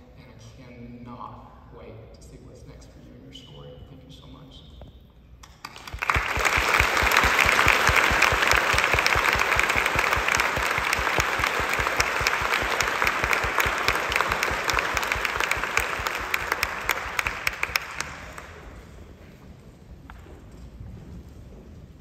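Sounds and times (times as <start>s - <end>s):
audience applauding: 5.4s - 19.0s.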